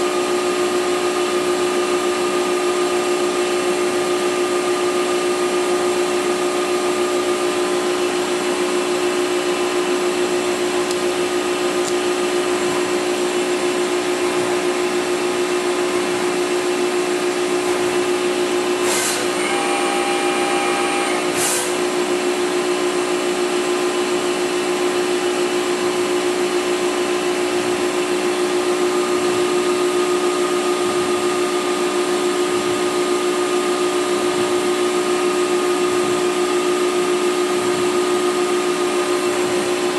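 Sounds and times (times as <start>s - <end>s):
high-pitched machine whine: 16.8s - 27.4s
machining center whirring: 17.3s - 22.7s.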